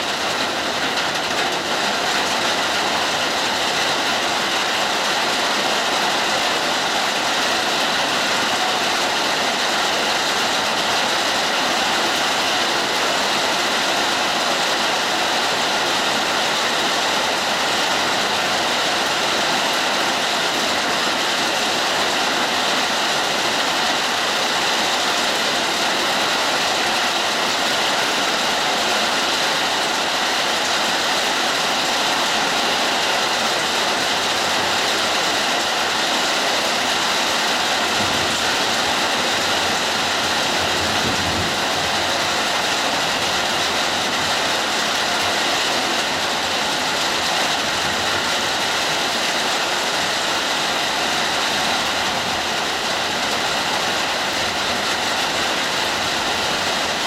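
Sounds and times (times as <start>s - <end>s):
hard rain hissing: 0.0s - 57.0s.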